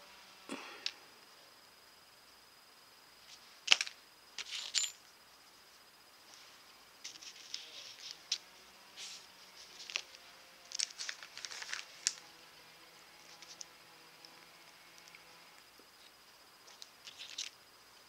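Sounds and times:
glass pieces clicking on paper: 0:16.7 - 0:17.6.

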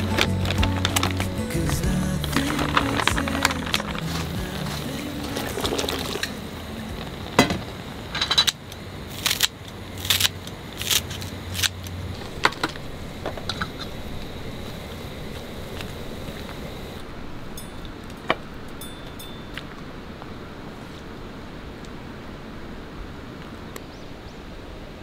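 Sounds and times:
background music: 0:00.0 - 0:06.5
low steady hum: 0:00.0 - 0:25.0.

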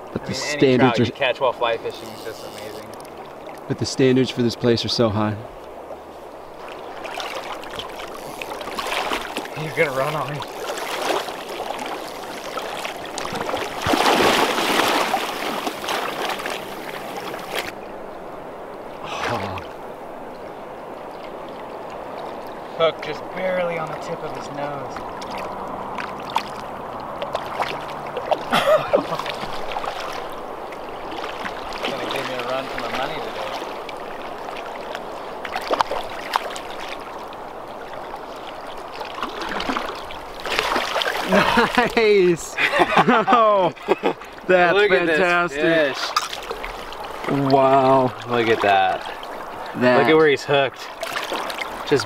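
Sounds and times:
river water splashing: 0:00.0 - 0:52.0
short water splash: 0:06.6 - 0:17.8, 0:19.0 - 0:19.8, 0:39.0 - 0:41.9, 0:50.9 - 0:52.0.

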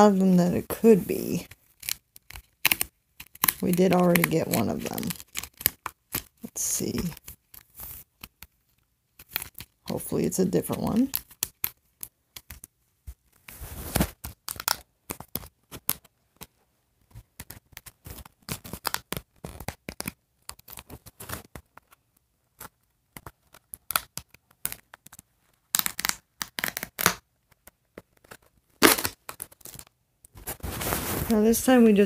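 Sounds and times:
plastic packaging tearing and crinkling: 0:01.4 - 0:06.4, 0:17.4 - 0:21.6, 0:28.1 - 0:31.4.

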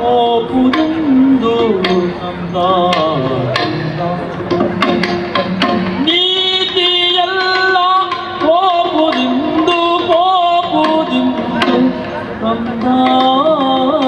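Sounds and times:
person singing melodic line: 0:00.0 - 0:14.0
sustained pitched accompaniment: 0:00.6 - 0:08.2
sharp drum strokes: 0:00.7 - 0:14.0.

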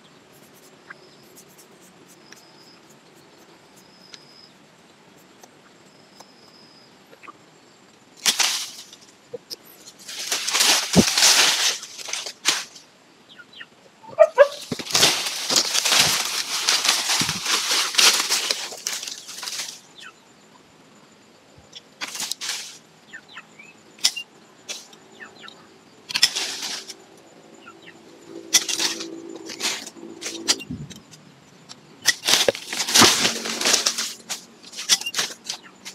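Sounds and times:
leafy branches rustling: 0:08.2 - 0:12.9, 0:14.2 - 0:20.1, 0:22.0 - 0:22.9, 0:26.1 - 0:27.1, 0:27.8 - 0:30.9, 0:32.0 - 0:35.9.

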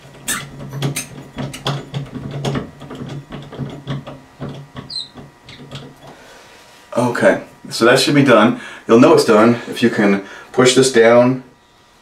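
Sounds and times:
toilet valve clicking and rattling: 0:00.0 - 0:06.1.

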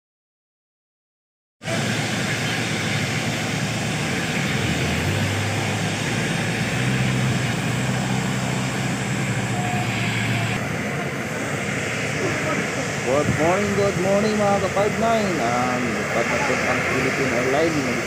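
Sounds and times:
jet engine rushing hiss: 0:01.6 - 0:18.0
low hum: 0:01.7 - 0:18.0.

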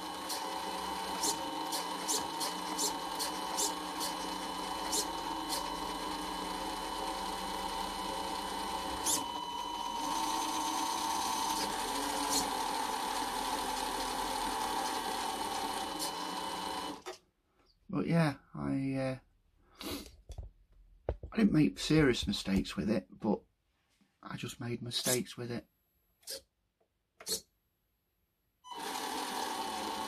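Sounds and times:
electric motor and gears whining: 0:00.0 - 0:17.2, 0:28.7 - 0:30.0.

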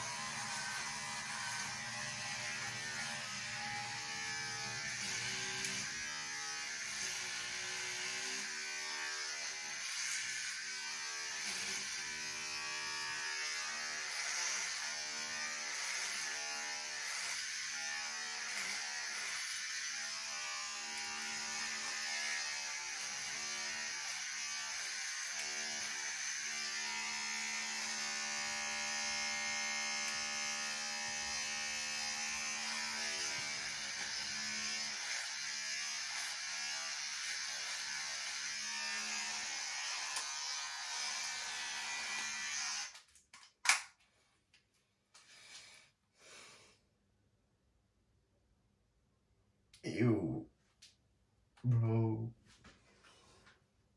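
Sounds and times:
electric hair clippers buzzing: 0:00.0 - 0:43.1.

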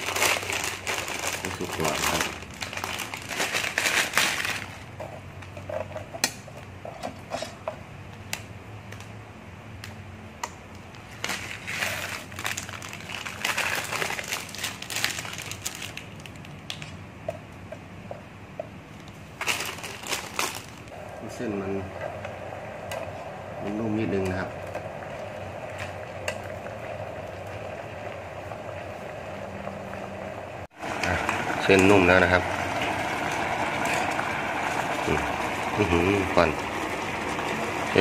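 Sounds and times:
plastic packet crinkling: 0:00.0 - 0:05.0, 0:11.1 - 0:17.0, 0:19.4 - 0:20.9
steady low hum: 0:20.6 - 0:38.0.

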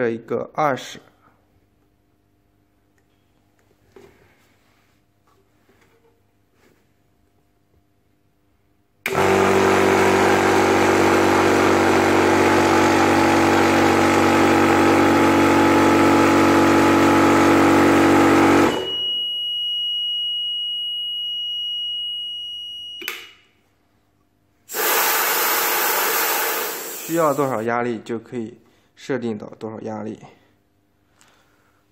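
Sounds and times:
air compressor running: 0:09.0 - 0:18.9, 0:24.7 - 0:27.6
continuous high-pitched alarm beep: 0:18.7 - 0:23.1.

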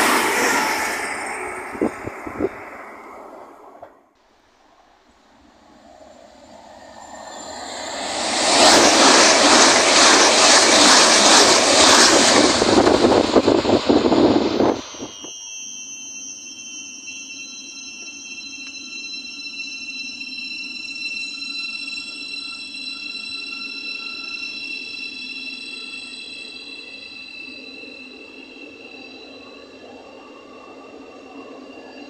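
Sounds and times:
electric train whine: 0:00.0 - 0:04.1, 0:05.2 - 0:32.0
train passing at speed: 0:00.0 - 0:04.1, 0:05.3 - 0:15.3, 0:18.0 - 0:32.0.

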